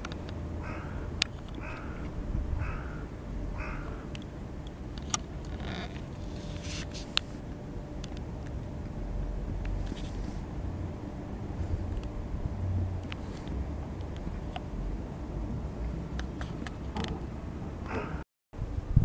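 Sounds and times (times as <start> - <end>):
low rumble of wind or traffic: 0.0 - 19.0
bird calling: 0.6 - 4.1.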